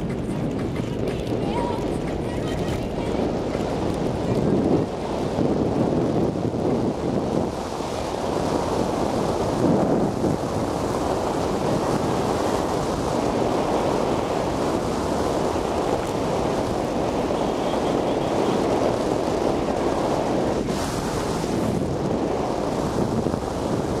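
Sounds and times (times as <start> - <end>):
vehicle road rumble on dirt: 0.0 - 24.0
wind rushing over microphone: 0.0 - 24.0.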